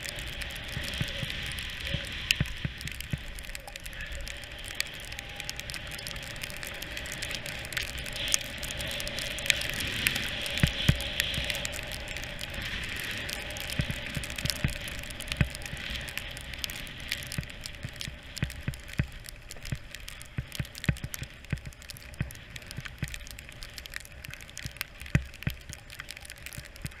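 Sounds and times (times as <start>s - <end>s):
skis sliding over snow: 0.0s - 27.0s.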